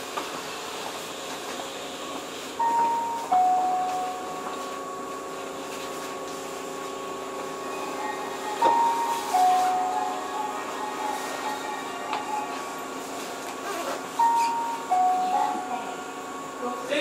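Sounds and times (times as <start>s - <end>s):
electric train hum: 0.0s - 17.0s
two-note falling chime: 2.6s - 4.8s, 7.7s - 12.6s, 14.2s - 16.0s.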